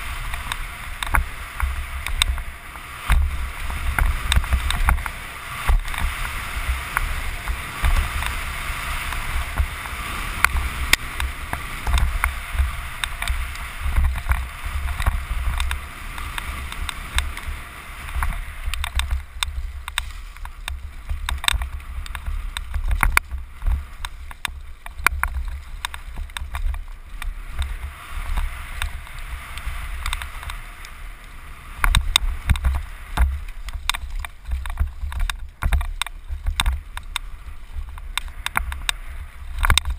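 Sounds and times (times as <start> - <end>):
bike clattering over bumps: 0.0 - 30.7, 31.8 - 39.9.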